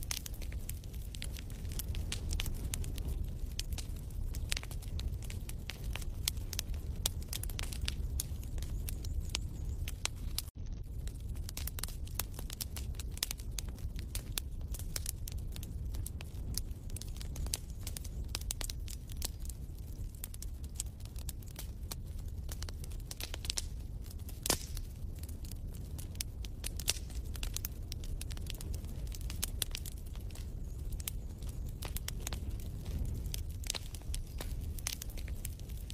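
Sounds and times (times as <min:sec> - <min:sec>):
log fire crackling: 0:00.0 - 0:35.9.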